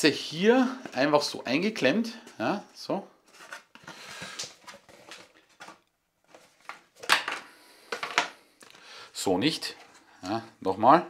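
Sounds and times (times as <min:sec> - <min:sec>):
cardboard box rustling: 0:03.3 - 0:07.0.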